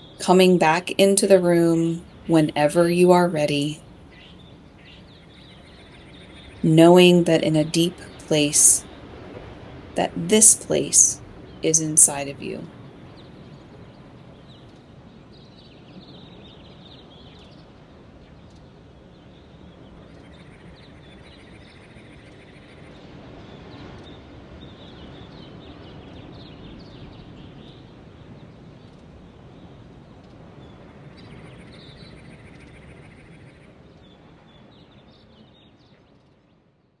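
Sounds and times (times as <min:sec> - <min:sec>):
background hiss: 0:00.0 - 0:21.3.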